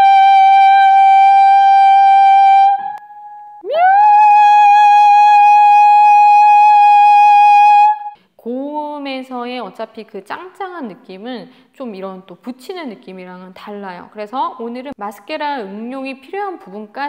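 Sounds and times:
woman singing soprano notes: 0.0s - 8.2s.

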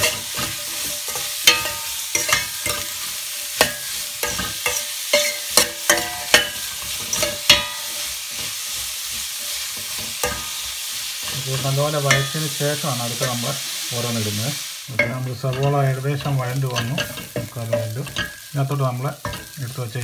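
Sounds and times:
metal spoon clinking against pot: 0.0s - 8.2s, 9.8s - 11.4s, 12.0s - 12.6s, 15.0s - 18.5s, 19.2s - 19.6s
onions sizzling in hot oil: 0.0s - 20.0s.

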